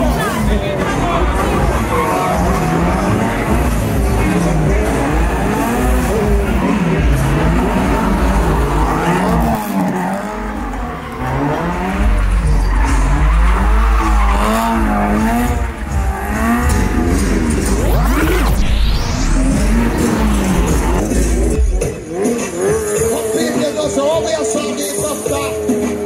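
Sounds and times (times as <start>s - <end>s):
car engine revving: 0.0s - 26.0s
motorcycle engine revving: 0.0s - 26.0s
fast rising whoosh: 14.4s - 21.6s.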